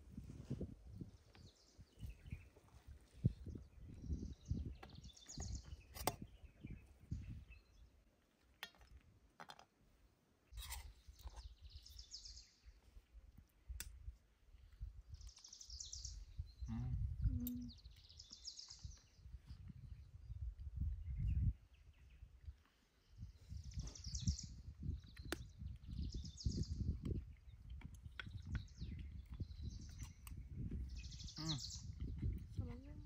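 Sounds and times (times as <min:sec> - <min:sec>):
low wind rumble: 0:00.0 - 0:08.0, 0:10.9 - 0:33.0
birds chirping: 0:01.0 - 0:07.9, 0:14.7 - 0:33.0.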